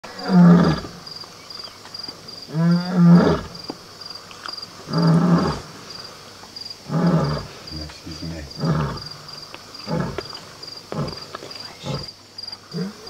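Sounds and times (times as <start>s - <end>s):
crickets chirping: 0.0s - 13.0s
lion roaring: 0.1s - 1.0s, 2.5s - 3.6s, 4.8s - 5.8s, 6.8s - 12.1s.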